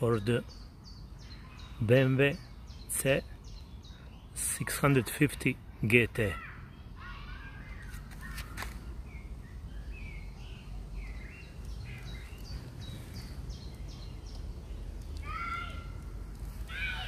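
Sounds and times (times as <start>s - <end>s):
birds chirping: 0.0s - 17.0s
low outdoor rumble: 6.5s - 17.0s
harsh bird call: 16.6s - 17.0s.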